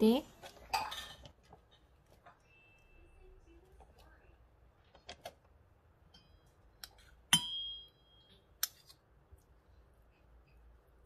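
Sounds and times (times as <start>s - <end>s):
metal spoons clinking on steel bowl: 7.3s - 8.8s.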